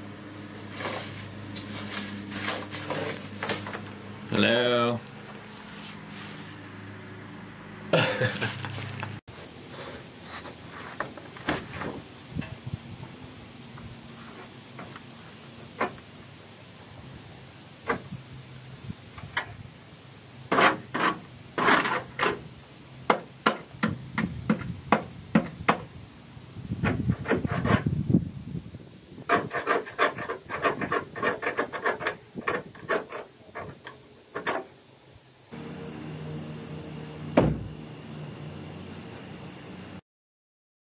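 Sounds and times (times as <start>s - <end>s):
hand scraper scraping metal frame: 0.6s - 4.0s, 20.5s - 22.5s, 26.8s - 28.0s, 29.2s - 34.8s.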